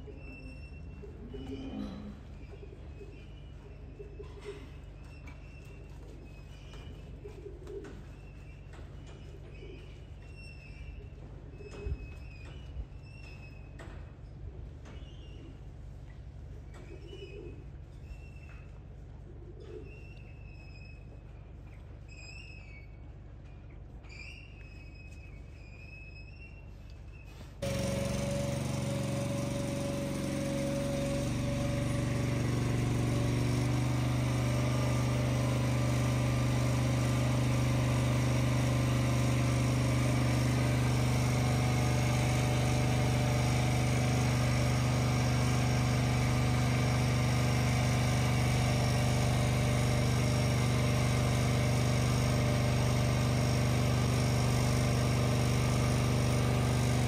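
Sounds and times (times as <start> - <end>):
loud steady motor hum: 27.6 - 57.0.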